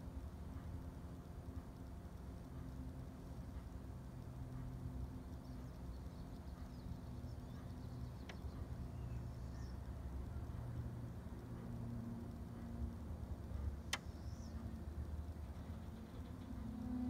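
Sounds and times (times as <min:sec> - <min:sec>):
low steady hum and rumble: 0:00.0 - 0:17.0
faint bird chirps: 0:05.2 - 0:10.1, 0:14.0 - 0:14.8
sharp click: 0:13.9 - 0:14.3.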